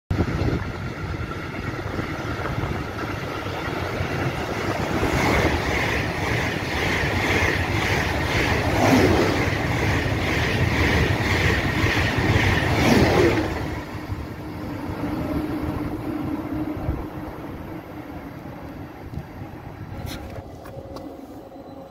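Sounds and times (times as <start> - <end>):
high-speed train passing: 0.1 - 21.9
train wheels clattering on rails: 0.2 - 14.1.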